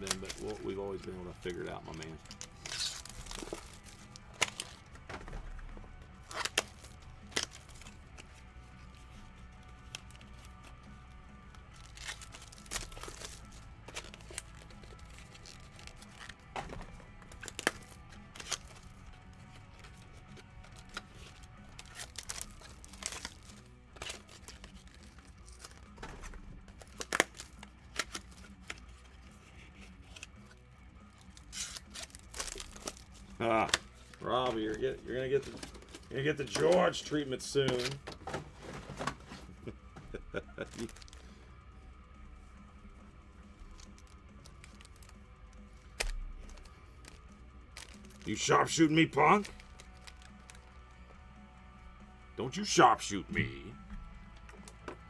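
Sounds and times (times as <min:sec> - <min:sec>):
plastic and foil packaging crinkling: 0:00.0 - 0:05.0, 0:11.6 - 0:16.5, 0:17.1 - 0:30.6, 0:31.2 - 0:41.4, 0:43.6 - 0:50.8
faint background music: 0:00.0 - 0:55.0.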